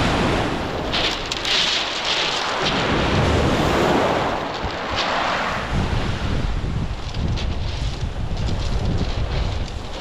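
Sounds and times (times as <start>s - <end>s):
waves washing over shingle: 0.0s - 10.0s
wind buffeting microphone: 2.5s - 10.0s.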